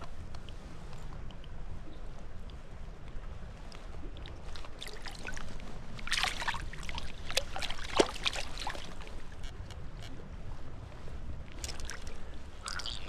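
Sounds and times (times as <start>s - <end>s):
steady low rumble: 0.0s - 13.0s
water splashing and trickling: 4.1s - 9.5s, 11.5s - 13.0s.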